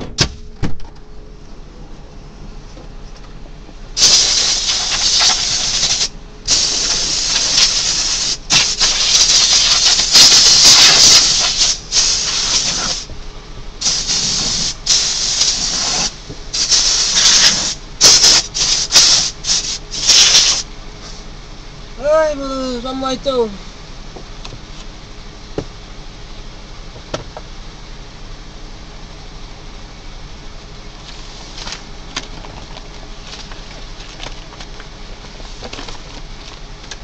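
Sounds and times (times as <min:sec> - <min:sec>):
loud hissing bursts: 0:04.0 - 0:13.1, 0:13.8 - 0:21.3.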